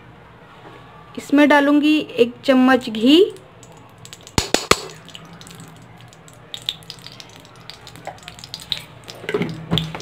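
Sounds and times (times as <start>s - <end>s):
ghee sizzling and crackling: 2.8s - 10.0s.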